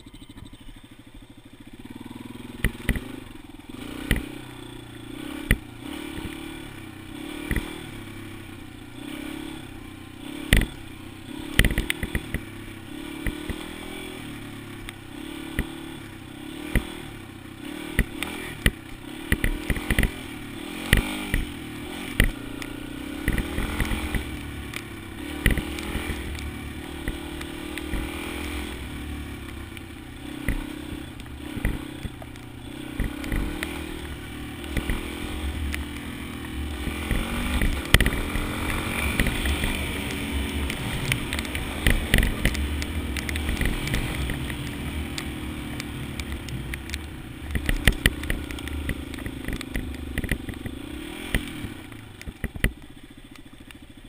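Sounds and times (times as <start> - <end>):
motorcycle engine revving: 0.0 - 54.0
sharp clicks and knocks: 2.6 - 3.1, 7.4 - 7.7, 11.5 - 12.5, 17.9 - 20.2, 20.8 - 21.5, 22.1 - 28.7, 29.5 - 53.8.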